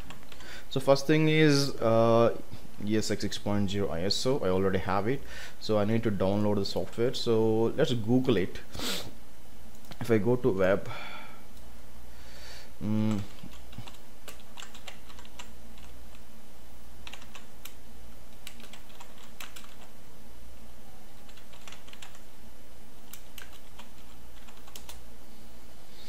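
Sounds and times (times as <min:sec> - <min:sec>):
man humming: 0:12.8 - 0:13.5
keyboard typing clicks: 0:13.0 - 0:16.0, 0:17.0 - 0:19.9, 0:21.2 - 0:22.2, 0:23.0 - 0:25.0.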